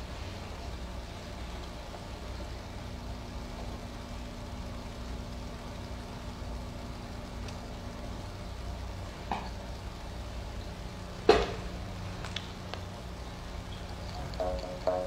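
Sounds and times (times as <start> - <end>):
low background hum: 0.0 - 15.0
faint steady tone: 13.2 - 15.0.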